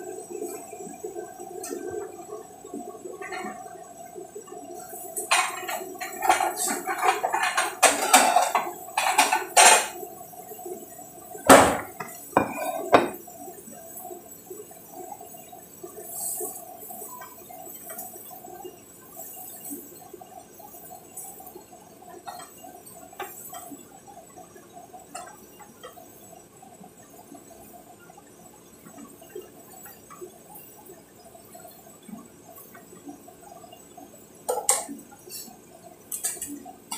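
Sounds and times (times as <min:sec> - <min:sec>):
plate and utensils clinking: 0:05.3 - 0:10.0, 0:11.5 - 0:13.2
tapping on steel pot: 0:11.5 - 0:13.2.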